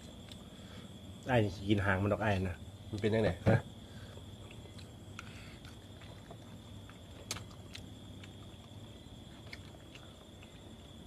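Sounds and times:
high insect drone: 0.0 - 11.0
mouths chewing and smacking: 4.0 - 11.0.

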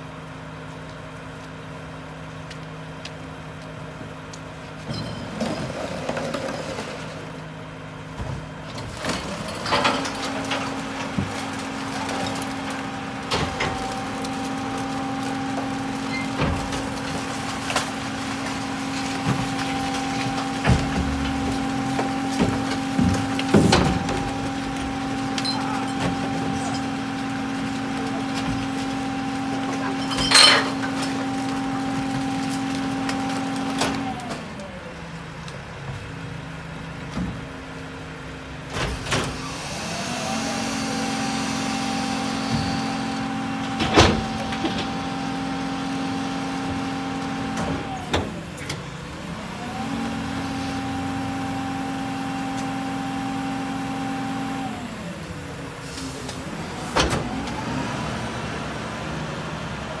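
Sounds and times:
garbage truck engine revving: 5.2 - 60.0.

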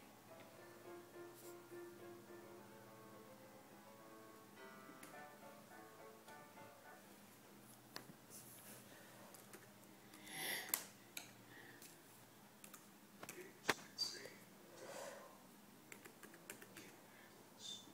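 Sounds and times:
soft breathing: 8.3 - 9.4, 10.0 - 12.0, 13.4 - 15.5, 16.9 - 17.9
laptop keys and touchpad clicks: 15.9 - 16.9.

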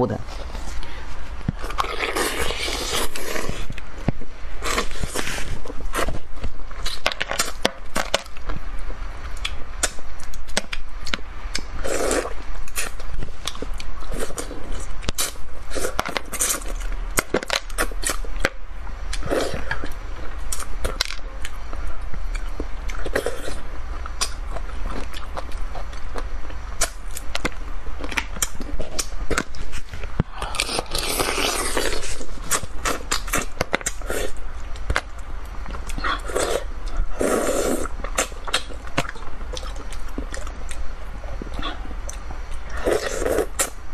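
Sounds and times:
person chewing and slurping: 0.4 - 3.8, 28.1 - 34.4.

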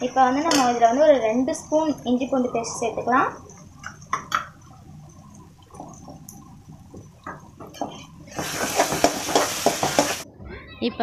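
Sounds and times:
spoon scraping frying masala: 7.8 - 10.2.

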